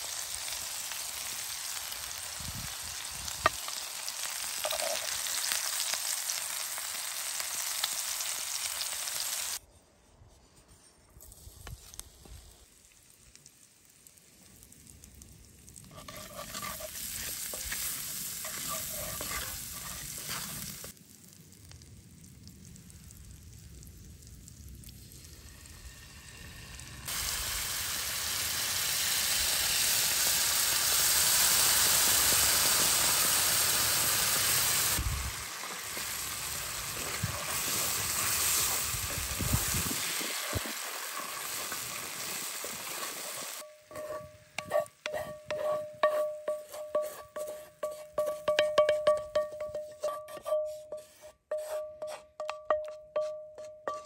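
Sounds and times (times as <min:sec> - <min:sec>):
garlic sizzling in oil: 0:00.0 - 0:09.6, 0:11.3 - 0:51.8
loud hiss in hot pan: 0:00.0 - 0:09.6, 0:15.9 - 0:21.0, 0:25.3 - 0:44.3.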